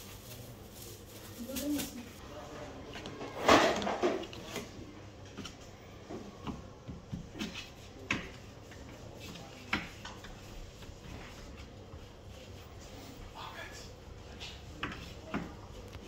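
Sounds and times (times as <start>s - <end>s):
kitchen work knocks and clicks: 2.9s - 10.5s, 14.8s - 15.6s.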